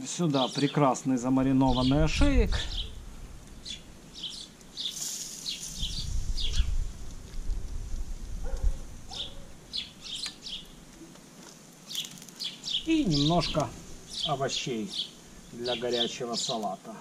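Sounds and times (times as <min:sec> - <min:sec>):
small birds chirping: 0:00.0 - 0:17.0
low uneven rumble: 0:01.4 - 0:11.4.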